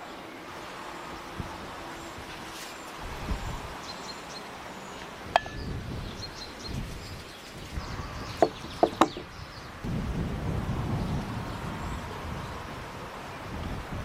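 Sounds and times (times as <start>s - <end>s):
steady background hiss: 0.0s - 14.0s
sharp ringing clink: 5.4s - 5.7s.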